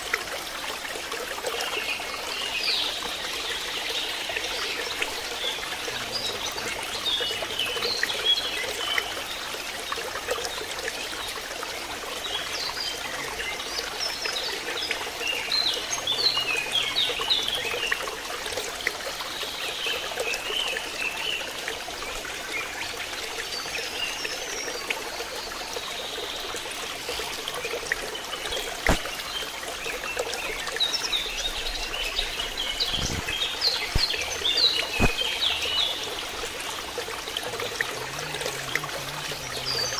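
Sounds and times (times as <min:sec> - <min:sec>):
water trickling into pond: 0:00.0 - 0:39.9
birds chirping: 0:01.8 - 0:09.5, 0:22.1 - 0:39.9
sharp click: 0:28.8 - 0:29.1.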